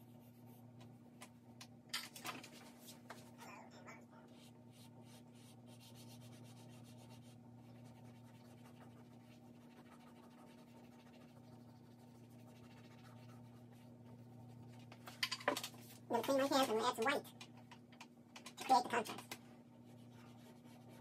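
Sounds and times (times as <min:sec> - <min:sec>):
low electrical hum: 0:00.0 - 0:21.0
charcoal scratching on paper: 0:04.3 - 0:15.0, 0:19.9 - 0:21.0.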